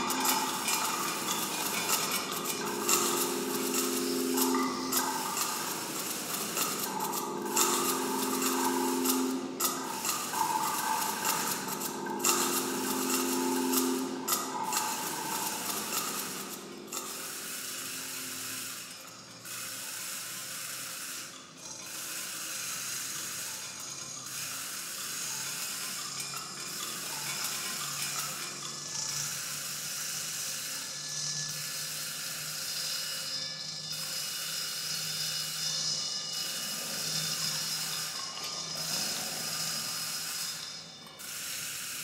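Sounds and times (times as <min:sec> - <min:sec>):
held mid-range tones: 0:00.0 - 0:17.0
scraping ratcheting noise texture: 0:00.0 - 0:42.0.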